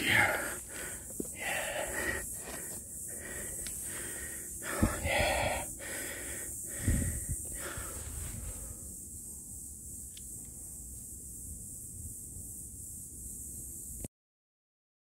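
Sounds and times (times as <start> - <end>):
person breathing heavily: 0.0 - 9.0.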